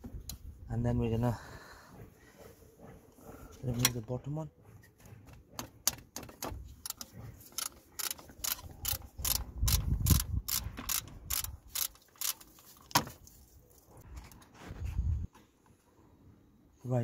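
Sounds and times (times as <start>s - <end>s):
ratchet spanner clicking: 5.8s - 12.7s.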